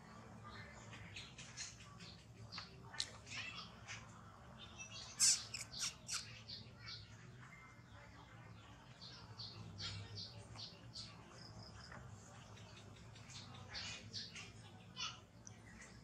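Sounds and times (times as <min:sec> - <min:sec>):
baby monkey squeaking and crying: 0:05.2 - 0:06.4.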